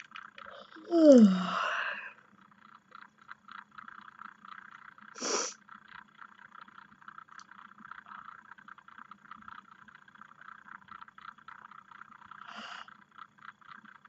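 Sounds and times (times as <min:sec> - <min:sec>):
faint crackling hiss: 0:00.0 - 0:14.0
person breathing noisily: 0:00.9 - 0:02.2, 0:05.2 - 0:05.6.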